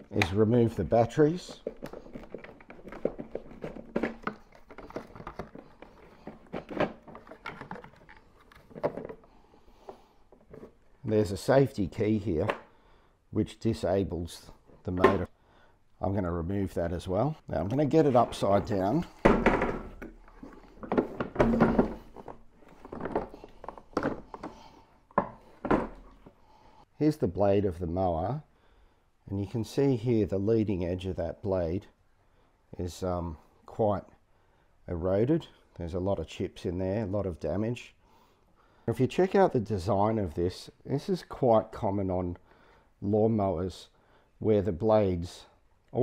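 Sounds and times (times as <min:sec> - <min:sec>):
plastic clicks and knocks: 0:01.5 - 0:09.3, 0:18.7 - 0:26.3
plastic thunks and knocks on metal bench: 0:19.1 - 0:20.2, 0:20.8 - 0:23.3, 0:25.2 - 0:26.0.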